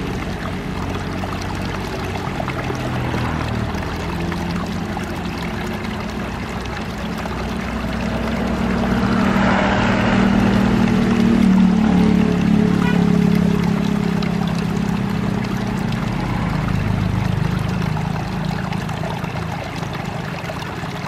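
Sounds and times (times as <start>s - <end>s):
waterfall splashing into pool: 0.0s - 21.0s
low sustained tones: 3.7s - 19.4s.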